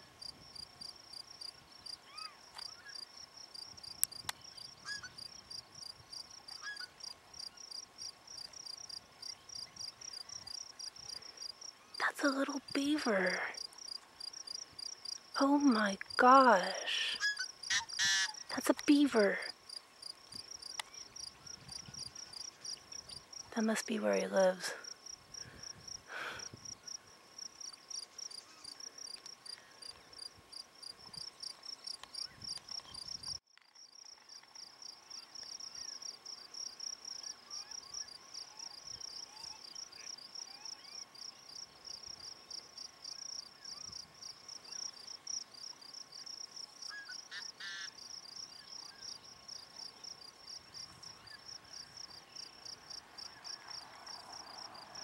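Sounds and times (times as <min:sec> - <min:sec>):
insect trilling: 0:13.0 - 0:19.8.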